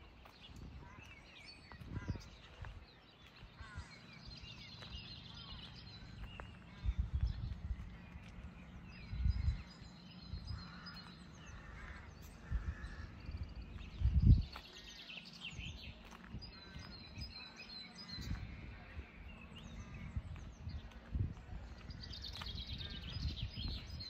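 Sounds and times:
songbirds chirping and singing: 0.0s - 24.0s
low rumbles: 3.6s - 14.6s.

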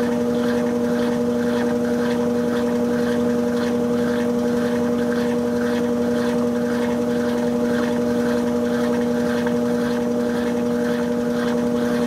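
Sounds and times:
washing machine spinning: 0.0s - 12.0s.

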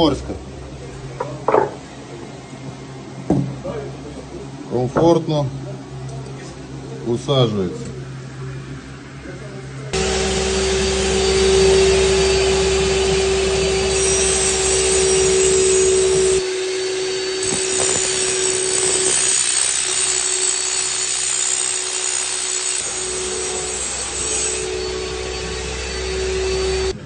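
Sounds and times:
extruder motor humming: 9.9s - 27.0s
chop saw cutting steel: 10.0s - 27.0s.

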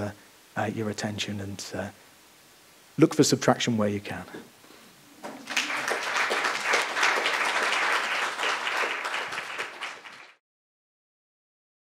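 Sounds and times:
audience applauding: 5.2s - 10.4s.

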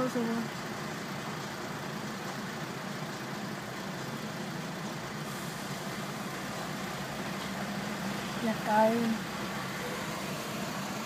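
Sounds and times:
car engine idling: 0.0s - 11.0s
stopped traffic hum: 0.0s - 11.0s.

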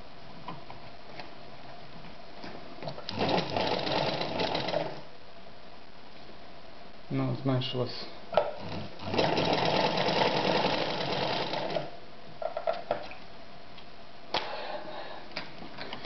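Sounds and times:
sewing machine clattering: 2.8s - 5.0s, 8.6s - 11.9s.

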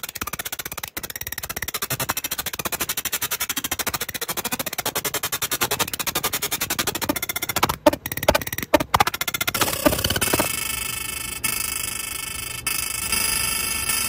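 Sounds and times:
laser engraver rapid ticking: 5.8s - 10.5s.

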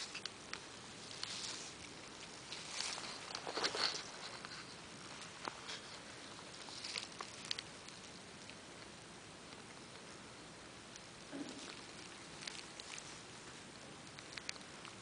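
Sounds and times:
dry leaves crackling and rustling: 0.0s - 8.5s, 11.6s - 13.4s.

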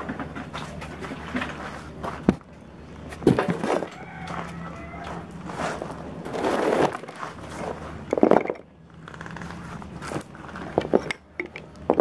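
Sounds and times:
packaging rustling and scraping: 3.2s - 11.1s.

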